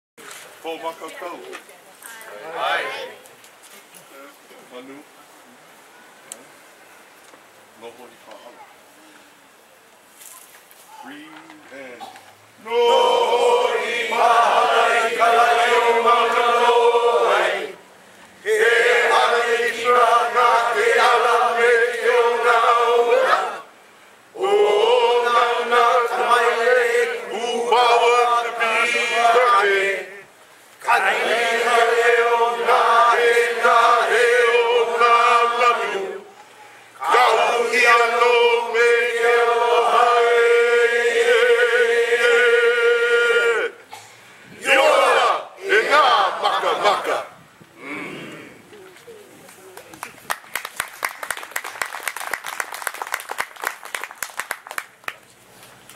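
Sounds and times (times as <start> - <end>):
group chanting in unison: 12.6 - 17.8, 18.4 - 23.7, 24.4 - 36.3, 37.0 - 43.8, 44.6 - 48.5.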